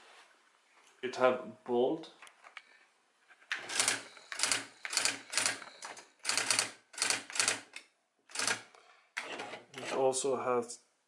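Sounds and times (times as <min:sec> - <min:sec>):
electronic typewriter printing: 0:03.6 - 0:09.6.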